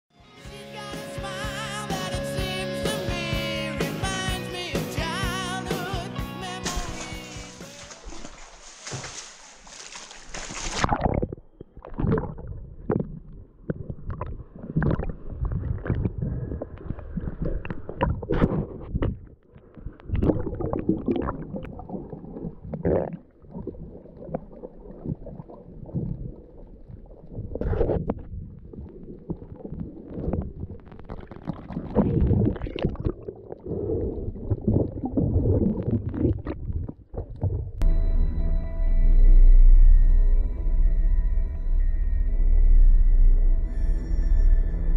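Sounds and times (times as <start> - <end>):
muffled underwater sloshing: 6.7 - 37.8.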